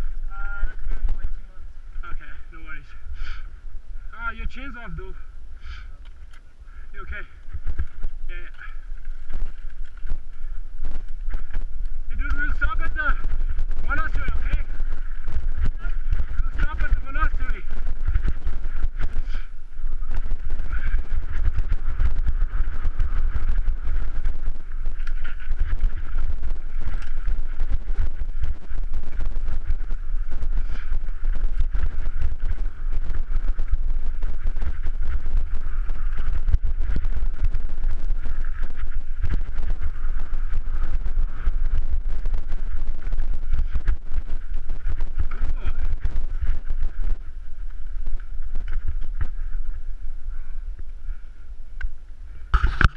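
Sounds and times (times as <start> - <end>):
wind buffeting microphone: 0.0 - 52.9.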